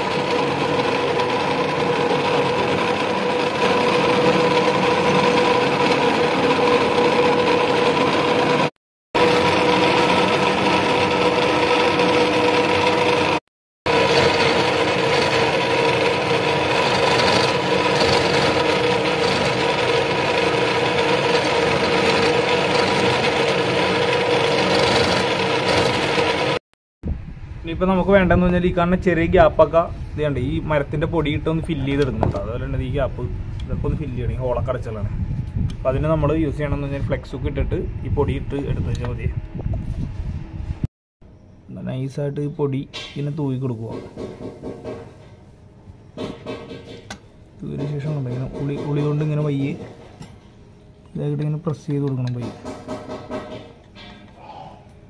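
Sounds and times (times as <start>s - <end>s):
electric drill boring into wood: 0.0s - 26.6s.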